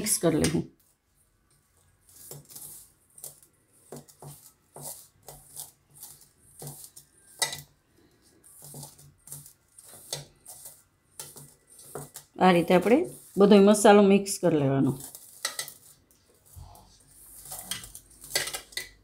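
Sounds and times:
hand mixing dry stuffing in bowl: 0:00.0 - 0:19.0.

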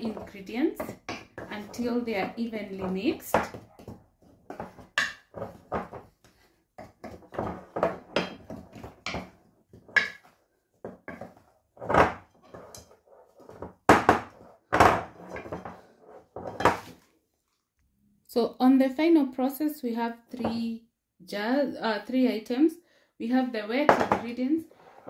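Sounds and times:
spatula scraping bowl: 0:00.0 - 0:10.4, 0:11.1 - 0:16.9, 0:24.2 - 0:25.0.

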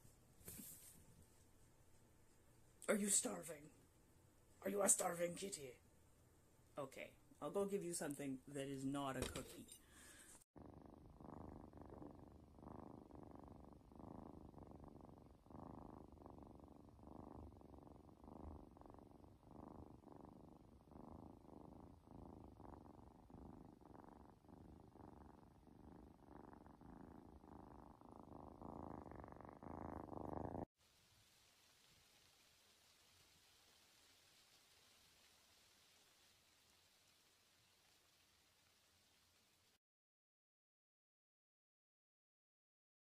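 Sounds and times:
kitten purring: 0:07.7 - 0:39.8.

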